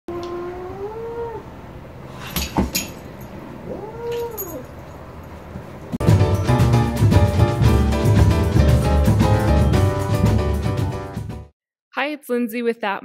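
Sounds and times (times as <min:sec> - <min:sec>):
cat meowing: 0:03.7 - 0:04.6
music with drums: 0:06.0 - 0:11.4.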